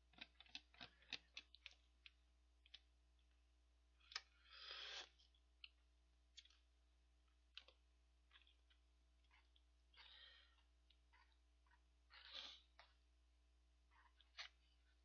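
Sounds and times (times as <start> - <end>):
noodle slurp: 12.1 - 12.8.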